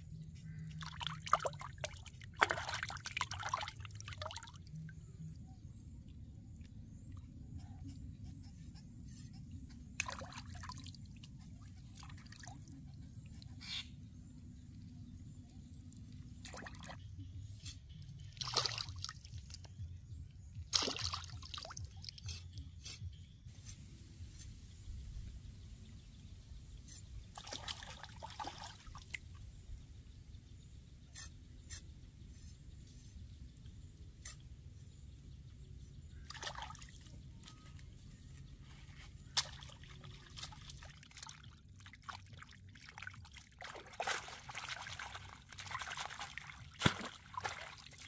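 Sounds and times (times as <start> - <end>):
water splashing and trickling: 0.5 - 5.3, 9.8 - 13.6, 15.0 - 17.2, 18.1 - 19.9, 20.6 - 22.5, 23.5 - 35.0, 35.8 - 48.0.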